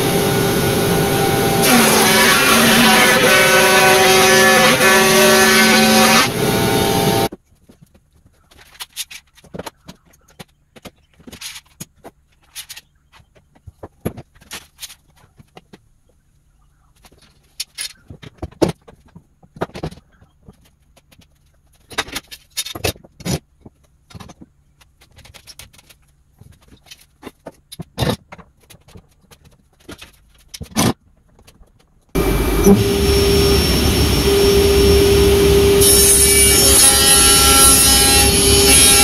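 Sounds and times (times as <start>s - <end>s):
router whining: 0.0s - 7.3s, 32.2s - 39.0s.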